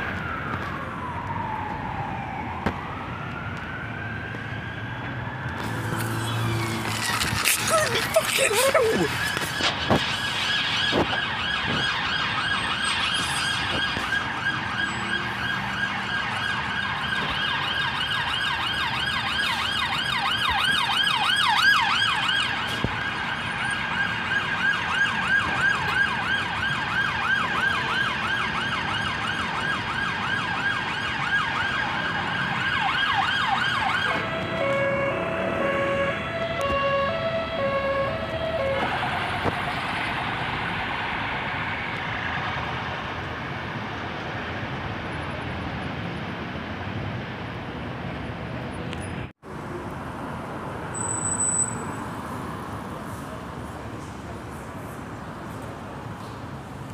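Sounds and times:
emergency siren yelping: 0.0s - 42.4s.

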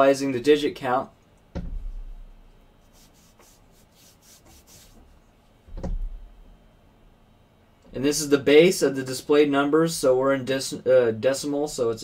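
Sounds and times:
dull thumps with low rumble: 1.5s - 2.3s, 5.7s - 6.4s
faint rubbing: 2.8s - 5.4s.

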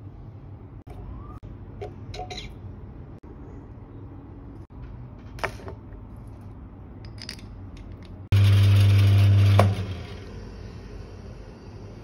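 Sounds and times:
grinder parts clicking and knocking: 7.0s - 8.3s
coffee grinder motor humming: 8.3s - 10.5s.

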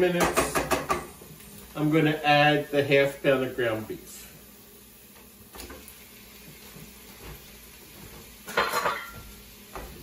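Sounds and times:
meat sizzling in a skillet: 0.0s - 10.0s
dish clattering: 8.5s - 9.3s.

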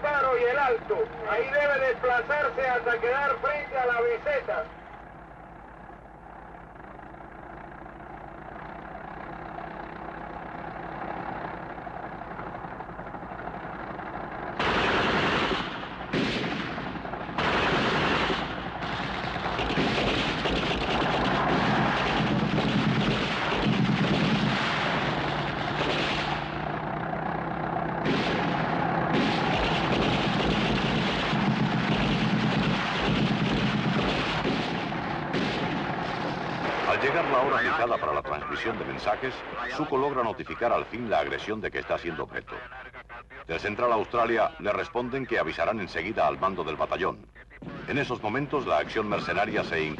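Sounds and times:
low motor hum: 0.0s - 36.9s
machine-gun and rifle fire: 14.5s - 26.7s, 28.0s - 37.7s.

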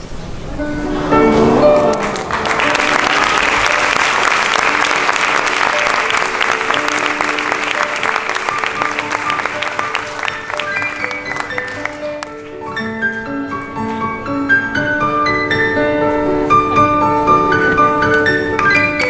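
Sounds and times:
background music with held notes: 0.5s - 19.0s
audience applauding: 1.6s - 12.6s.

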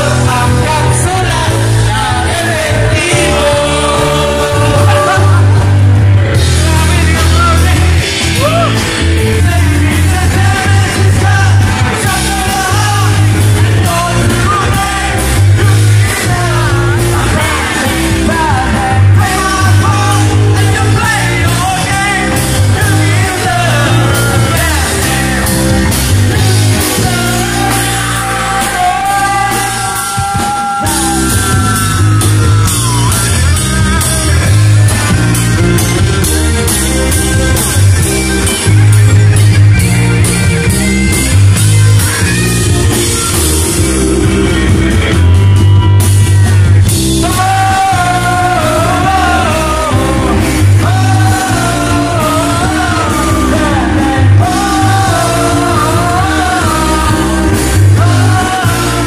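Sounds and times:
person singing: 0.0s - 36.0s, 46.8s - 59.0s
bass guitar: 0.0s - 59.0s
drum kit: 0.0s - 59.0s
electric guitar: 0.0s - 59.0s.

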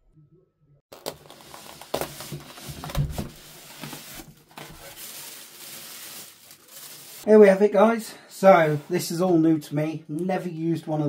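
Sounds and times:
plastic packaging rustling: 0.9s - 7.3s.

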